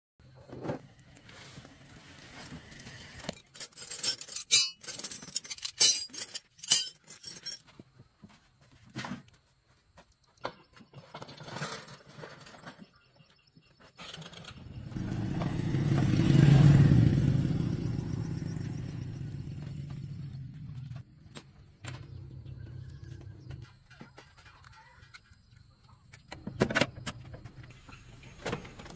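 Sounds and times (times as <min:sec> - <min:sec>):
metal tools clinking: 0:03.2 - 0:07.8.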